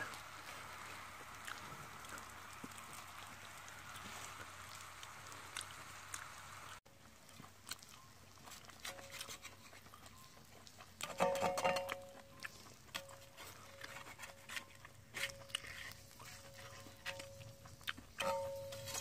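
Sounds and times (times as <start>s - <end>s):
meat sizzling on griddle: 0.0s - 6.8s.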